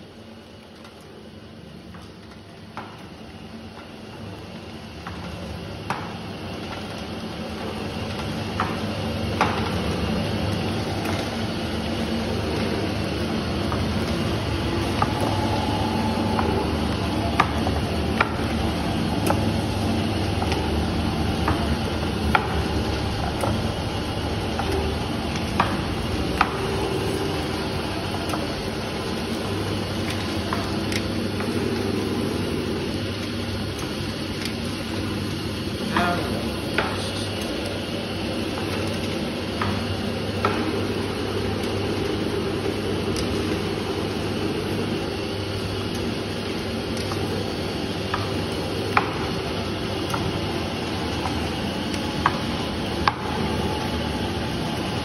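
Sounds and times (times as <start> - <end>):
machine motor hum: 0.0 - 55.0.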